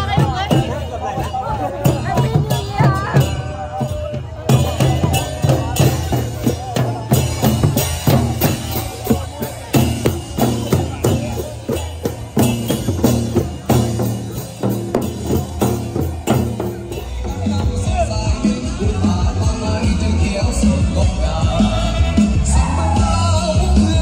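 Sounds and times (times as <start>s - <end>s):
hand drums: 0.0s - 24.0s.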